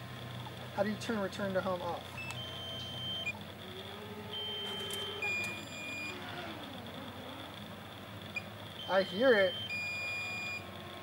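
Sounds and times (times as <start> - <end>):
remote controller warning beeps: 2.2 - 3.4, 4.3 - 6.2, 8.4 - 10.6.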